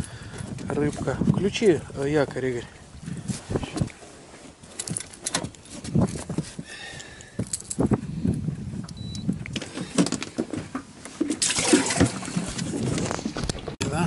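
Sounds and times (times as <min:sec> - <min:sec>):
knocks and clatter of gear: 0:04.6 - 0:08.0.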